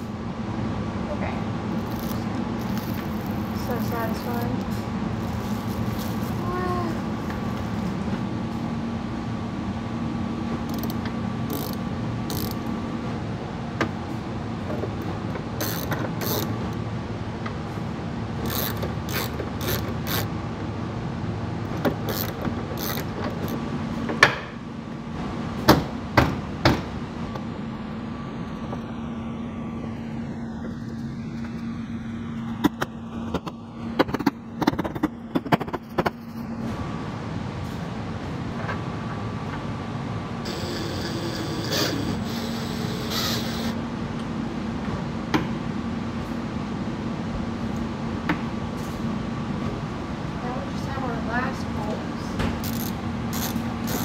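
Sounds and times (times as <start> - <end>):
steady low hum: 0.0 - 54.0
socket ratchet clicking: 10.7 - 12.7, 15.6 - 16.5, 18.4 - 20.3, 22.1 - 23.6.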